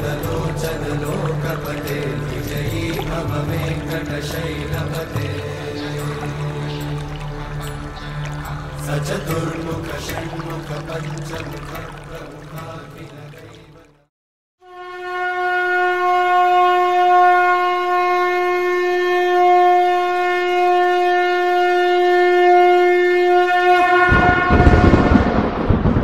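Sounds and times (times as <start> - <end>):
conch shell blown: 0.0 - 9.4, 14.6 - 25.4.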